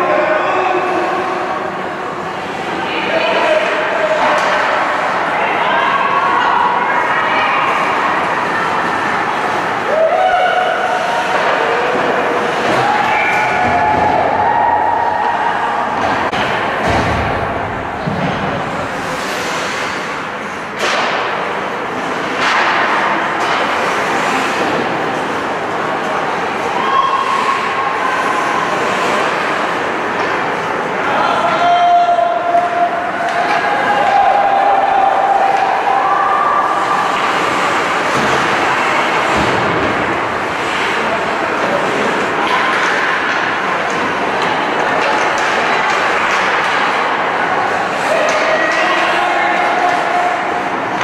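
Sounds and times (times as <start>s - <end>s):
crowd voices din: 0.0s - 51.0s
skates and sticks on ice: 18.0s - 21.3s, 22.0s - 27.7s, 36.7s - 51.0s.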